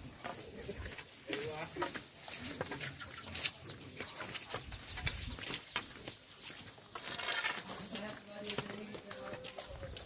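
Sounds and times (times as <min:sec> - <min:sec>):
footsteps walking: 0:00.0 - 0:10.0
small bird chirping: 0:02.7 - 0:07.4.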